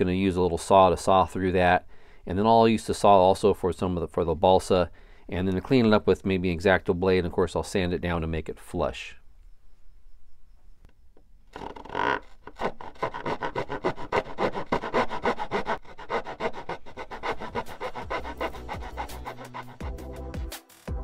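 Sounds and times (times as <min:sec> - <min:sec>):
razor saw cutting wood: 0:11.5 - 0:20.4.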